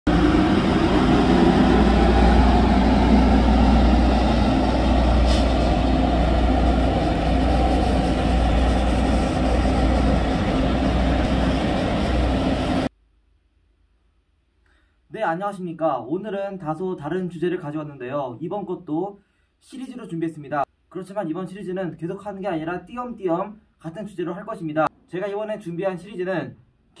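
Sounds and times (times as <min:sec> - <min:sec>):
heavy road vehicles rumbling: 0:00.1 - 0:12.9
brief high hiss: 0:05.2 - 0:05.8.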